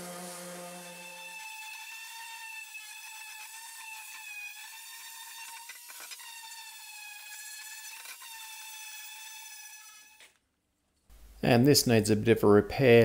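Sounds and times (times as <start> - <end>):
electric sander whining: 0.0 - 2.6.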